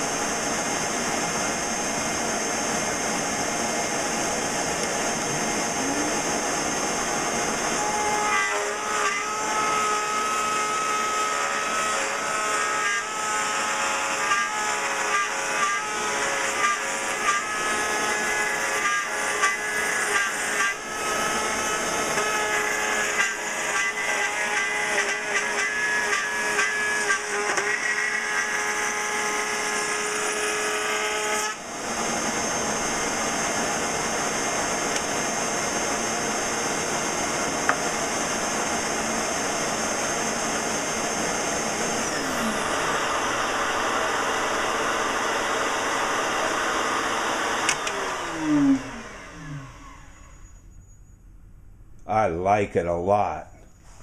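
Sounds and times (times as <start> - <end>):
router bit cutting wood: 0.0 - 50.3
shop vacuum running: 0.0 - 50.8
router spinning: 31.6 - 50.2.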